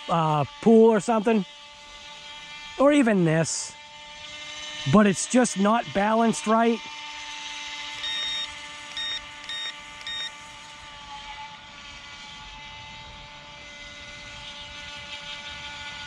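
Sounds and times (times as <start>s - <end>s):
electric motor whining: 0.0s - 16.0s
high electronic beeps: 8.0s - 10.3s.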